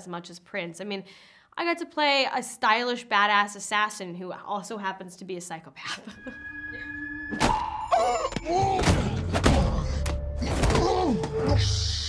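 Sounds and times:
held electronic tone: 6.2s - 8.6s
deep bass music: 6.7s - 12.0s.

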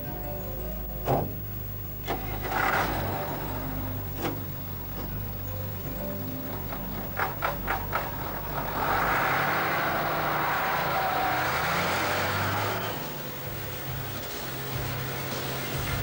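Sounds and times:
diesel truck engine humming: 0.0s - 16.0s
loud rushing hiss: 7.1s - 16.0s.

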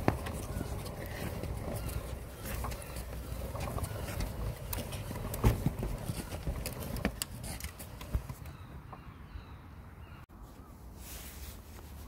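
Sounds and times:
plastic toy car rattling and knocking: 0.0s - 8.5s.

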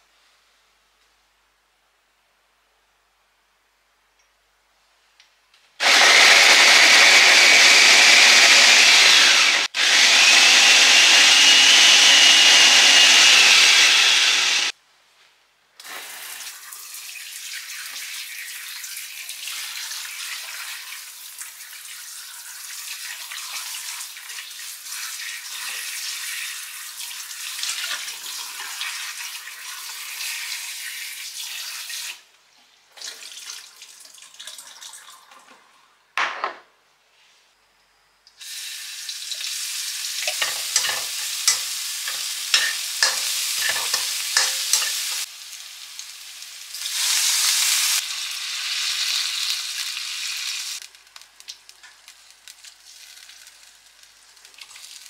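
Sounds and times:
food chopper motor whining: 5.8s - 14.7s.

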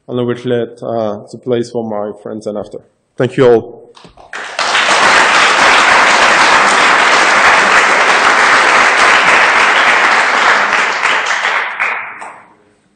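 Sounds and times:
audience applauding: 4.0s - 12.5s.

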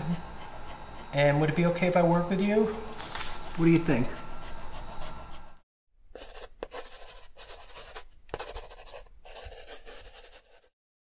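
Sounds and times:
pen scribbling on paper: 6.2s - 10.8s.

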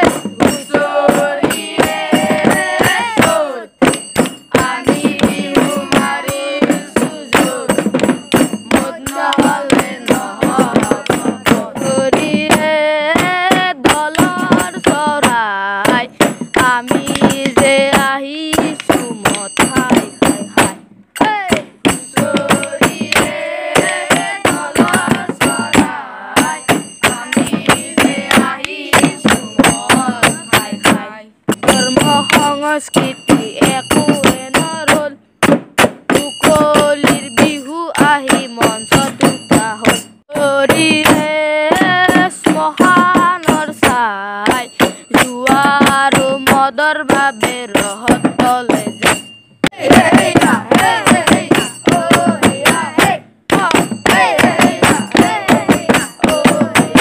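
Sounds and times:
drums beating fast rhythm: 0.0s - 57.0s
person singing: 8.8s - 35.2s.

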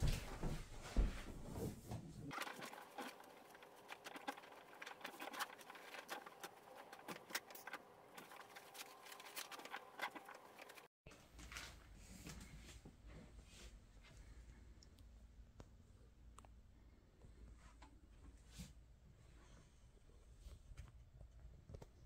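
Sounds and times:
clothes rustling: 0.0s - 13.9s.

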